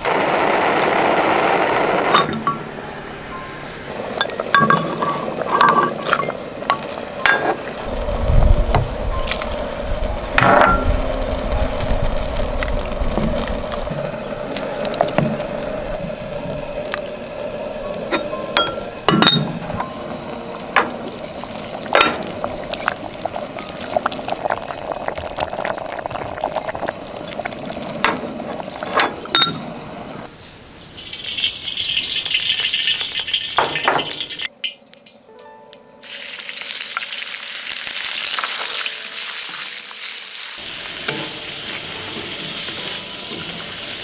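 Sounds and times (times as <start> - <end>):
steady hum: 0.0 - 25.1
food sizzling in a pan: 4.0 - 28.7, 30.8 - 34.5, 36.0 - 44.0
utensils clinking against dishes: 4.2 - 7.7, 18.1 - 20.2, 28.9 - 29.6.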